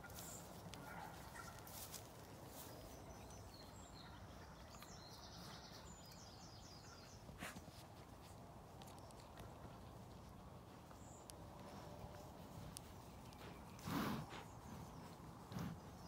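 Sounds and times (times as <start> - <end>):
small bird singing: 2.5 - 7.3.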